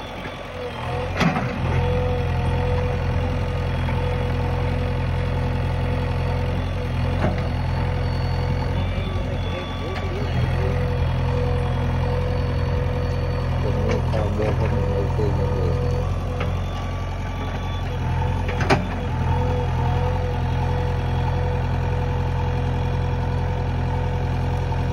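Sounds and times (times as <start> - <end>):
diesel engine running: 0.0 - 24.9
engine whine: 0.0 - 24.9.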